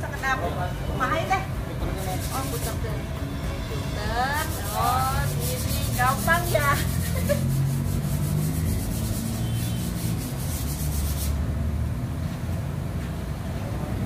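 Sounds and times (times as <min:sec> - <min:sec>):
rubbing on terracotta pot: 0:01.9 - 0:02.9, 0:04.0 - 0:11.4.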